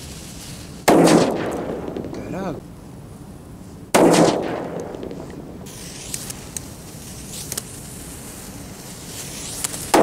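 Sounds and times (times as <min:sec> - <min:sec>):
faint spark crackles: 0:04.7 - 0:10.0
firecracker fuse hissing: 0:05.6 - 0:10.0.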